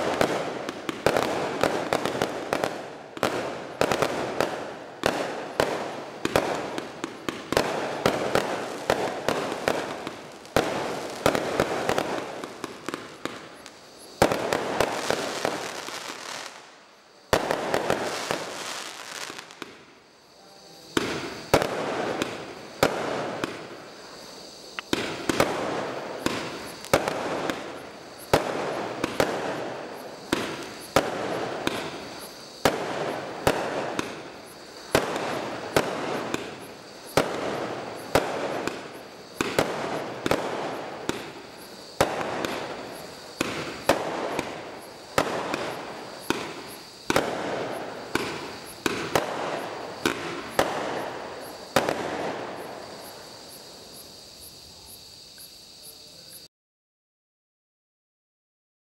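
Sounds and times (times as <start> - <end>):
fireworks bangs with crackling: 0.0 - 54.8
crickets chirring: 0.0 - 56.5.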